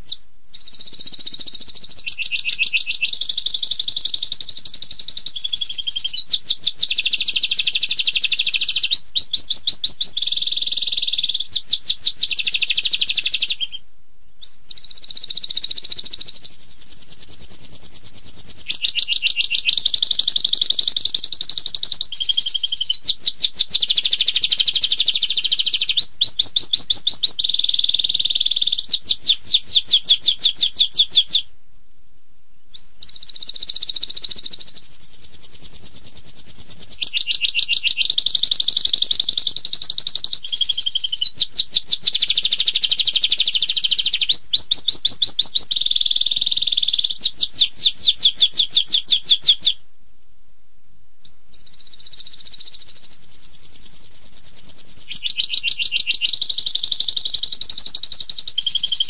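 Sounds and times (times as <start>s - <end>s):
canary singing trills: 0.0s - 31.5s, 32.7s - 49.8s, 51.2s - 59.0s.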